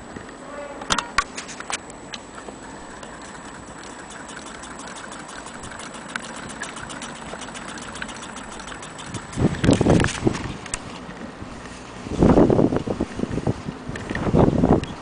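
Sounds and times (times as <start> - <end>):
hand-crank sewing machine stitching: 3.1 - 9.6.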